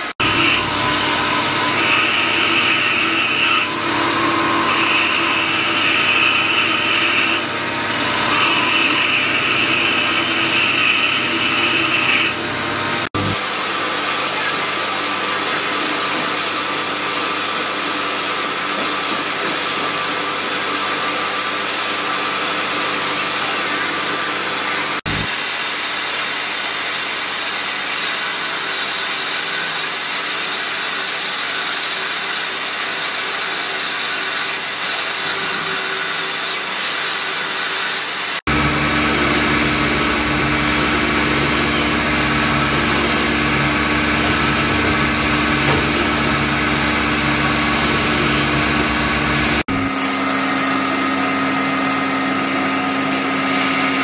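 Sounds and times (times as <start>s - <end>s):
rotary carving tool grinding stone: 0.0s - 54.0s
deeper motor hum: 25.0s - 25.3s, 38.5s - 51.7s.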